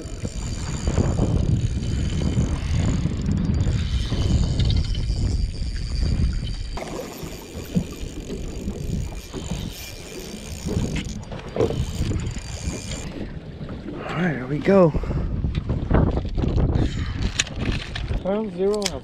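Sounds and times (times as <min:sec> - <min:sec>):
wind buffeting the microphone: 0:00.0 - 0:19.0
hands handling a fishing rod: 0:17.2 - 0:19.0.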